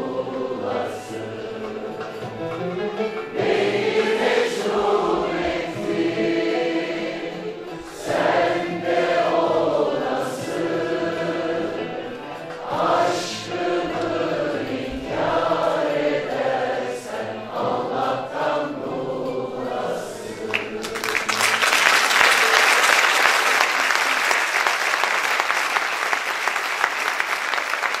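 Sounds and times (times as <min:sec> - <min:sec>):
choir and ensemble singing: 0:00.0 - 0:28.0
audience applauding: 0:20.4 - 0:28.0.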